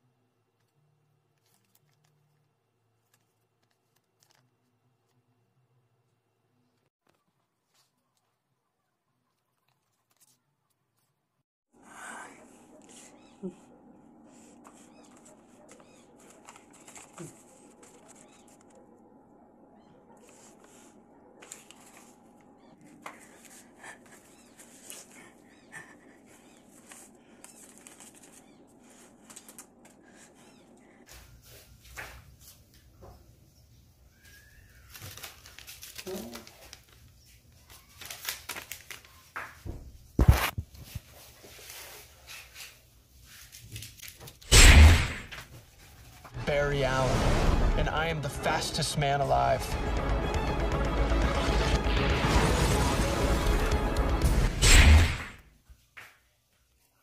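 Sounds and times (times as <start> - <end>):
paper rustling: 0.6 - 5.3, 6.7 - 8.4, 9.3 - 11.2, 14.3 - 18.9, 20.2 - 30.4, 34.2 - 44.5.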